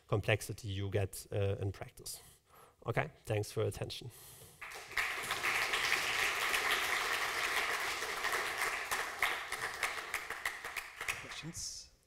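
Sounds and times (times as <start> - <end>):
audience applauding: 4.6 - 11.6.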